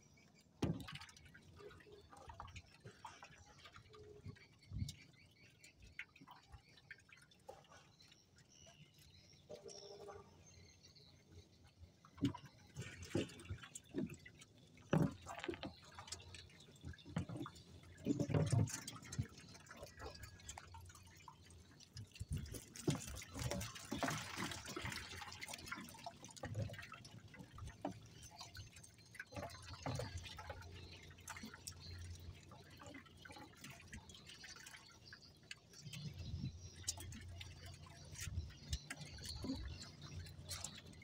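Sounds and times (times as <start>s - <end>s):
water dripping and splashing: 0.1s - 41.0s
small knocks and rustles: 12.2s - 20.7s.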